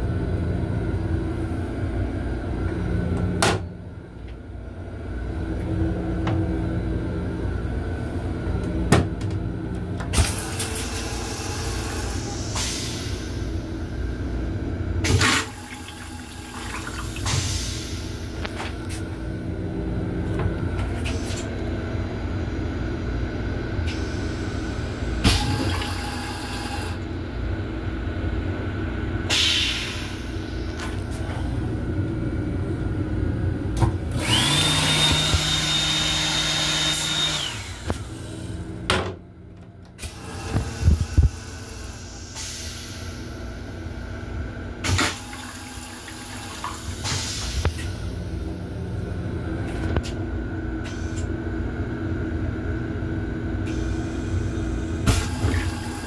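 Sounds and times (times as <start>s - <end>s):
railcar running rumble: 0.0s - 15.0s
motor whining: 34.1s - 38.0s.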